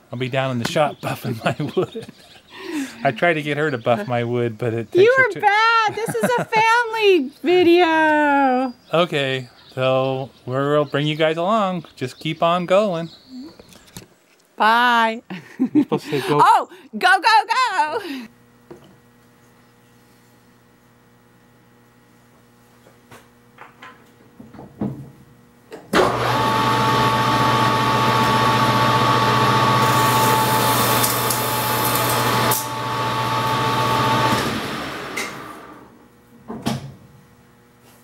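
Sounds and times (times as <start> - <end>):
metal lathe whining: 26.0 - 35.9.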